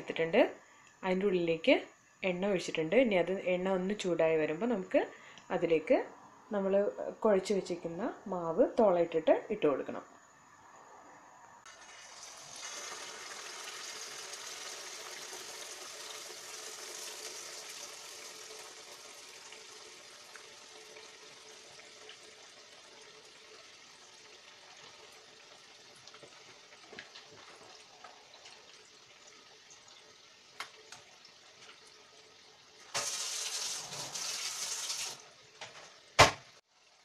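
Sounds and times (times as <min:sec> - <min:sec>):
batter sizzling in hot oil: 0:11.7 - 0:35.6.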